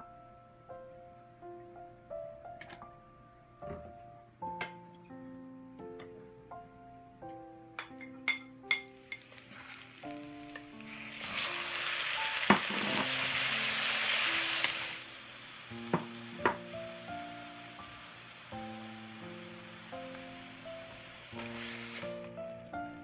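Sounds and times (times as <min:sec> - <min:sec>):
food sizzling in hot oil: 0:08.8 - 0:22.4.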